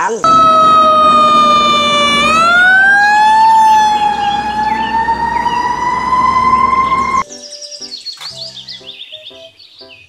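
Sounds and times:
fire engine siren wailing: 0.2 - 7.2.

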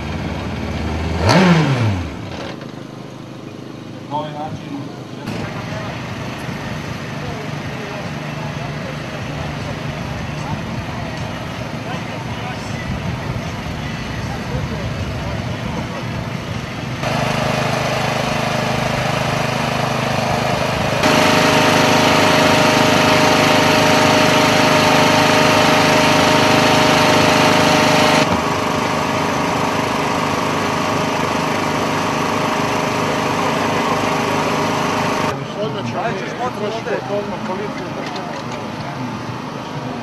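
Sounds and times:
engine drone: 0.0 - 40.0.

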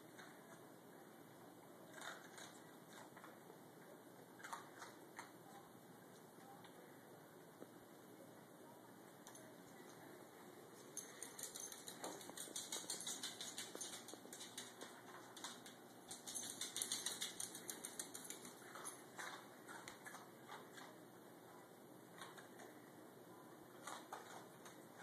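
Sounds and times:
dog claws clicking on floor: 11.0 - 21.0.

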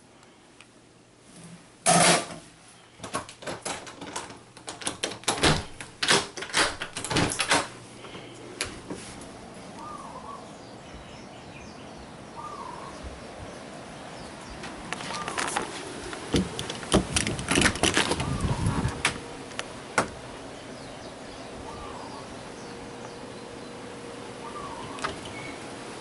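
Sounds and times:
outdoor background: 0.0 - 26.0
door latch clicks and knocks: 3.0 - 7.7
faint bird chirps: 9.8 - 13.2, 24.4 - 25.7.

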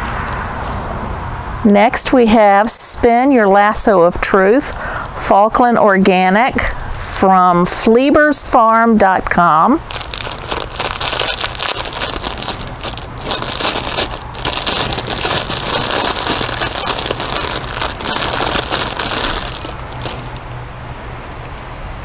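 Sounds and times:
plastic bag crinkling: 9.8 - 20.6.

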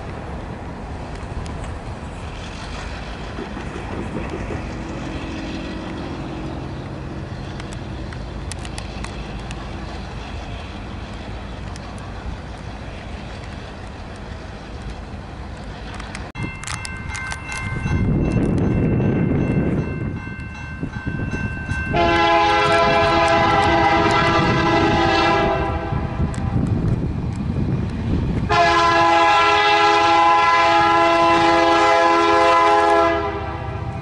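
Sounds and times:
freight train rumbling past: 0.0 - 34.0
metallic clicks from rolling cars: 0.9 - 22.0, 26.2 - 28.5
locomotive engine tone: 2.0 - 26.6.

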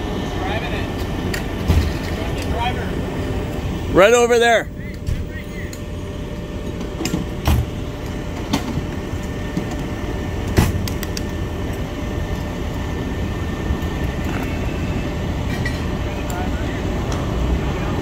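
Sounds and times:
faint steady whine: 0.0 - 18.0
fire engine running: 0.0 - 18.0.

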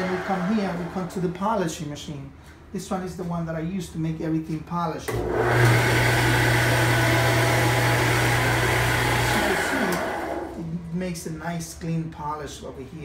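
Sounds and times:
polishing wheel whirring: 0.0 - 1.4, 5.2 - 10.6
motor hum: 5.2 - 10.6.

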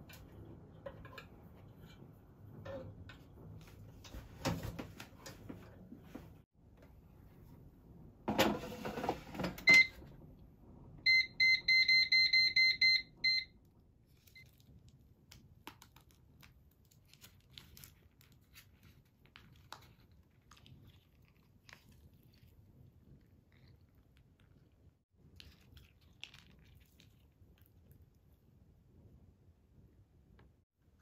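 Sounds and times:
control panel beeps: 11.1 - 13.5.

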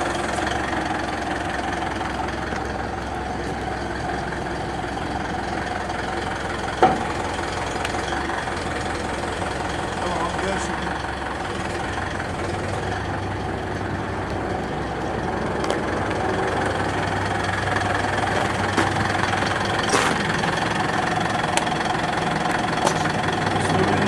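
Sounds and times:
truck engine idling: 0.0 - 24.0.

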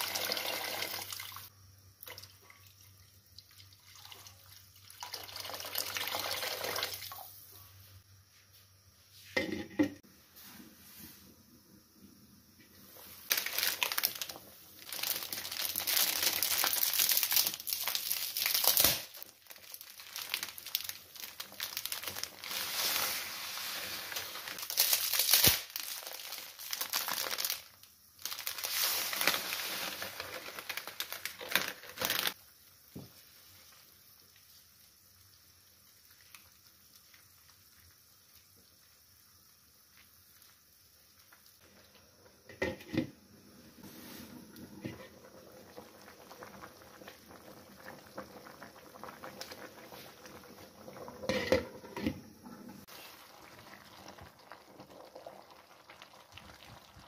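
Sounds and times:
plastic packet crinkling: 13.3 - 22.7, 24.4 - 32.4.

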